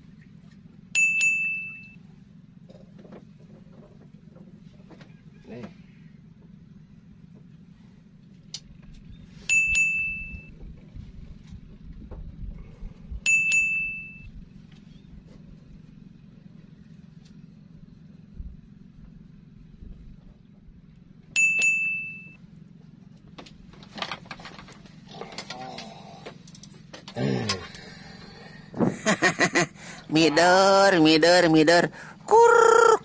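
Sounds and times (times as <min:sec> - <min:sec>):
steady low hum: 0:00.0 - 0:33.0
bell-like ding: 0:01.0 - 0:02.0, 0:21.4 - 0:22.4.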